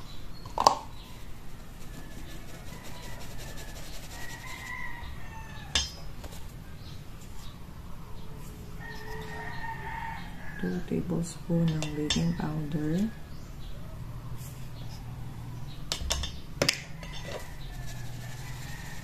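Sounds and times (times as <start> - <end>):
flour sifting through sieve: 1.0 - 5.4, 17.2 - 19.0
faint rooster crowing: 1.0 - 6.8, 7.4 - 11.1, 12.1 - 15.8, 16.7 - 19.0.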